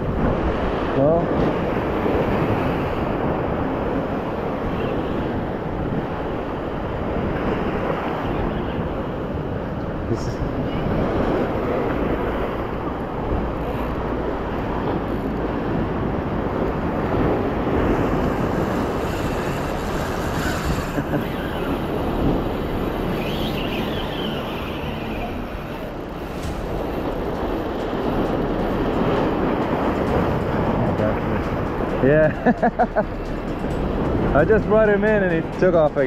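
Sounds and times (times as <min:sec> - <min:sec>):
surf: 0:00.0 - 0:36.0
wind rumble on microphone: 0:00.0 - 0:36.0.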